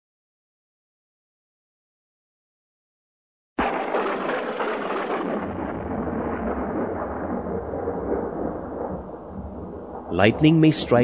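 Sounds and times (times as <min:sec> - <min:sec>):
thunder rumbling: 0:03.6 - 0:11.0.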